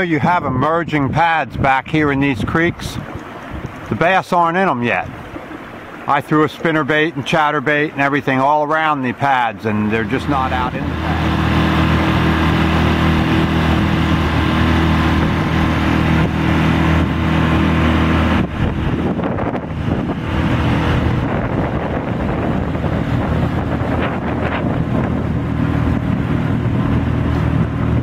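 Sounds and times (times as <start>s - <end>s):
wind on microphone: 0.0s - 4.0s, 10.2s - 28.0s
outboard motor running: 0.0s - 28.0s
water rushing along hull: 0.0s - 28.0s.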